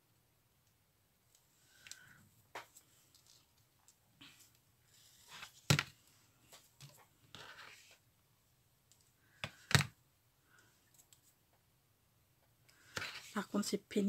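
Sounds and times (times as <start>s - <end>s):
soft rustling and scraping: 1.4s - 8.1s, 12.8s - 13.6s.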